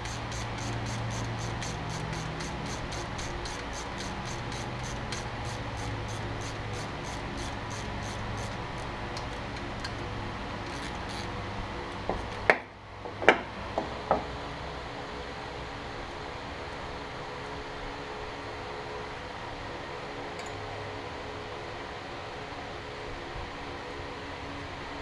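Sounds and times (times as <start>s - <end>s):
ratchet tool clicking: 0.0s - 10.0s, 10.6s - 11.3s.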